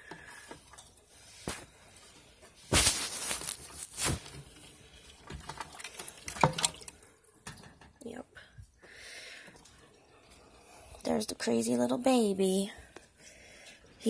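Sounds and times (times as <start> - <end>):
dry moss rustling and crackling: 2.5 - 6.2.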